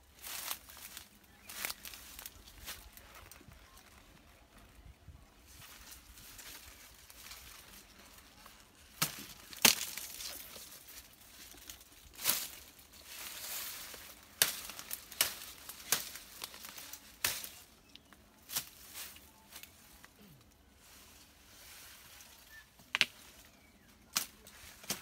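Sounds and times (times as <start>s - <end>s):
dry leaves rustling: 0.0s - 25.0s
knife cutting sugarcane cracks: 9.0s - 10.4s, 14.4s - 16.2s, 17.2s - 17.6s.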